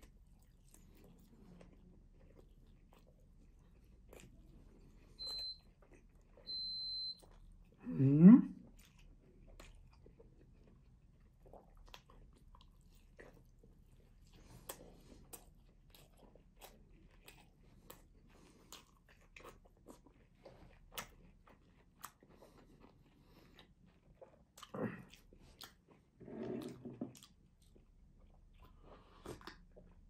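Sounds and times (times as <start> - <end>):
wet chewing mouth clicks: 14.3 - 30.0.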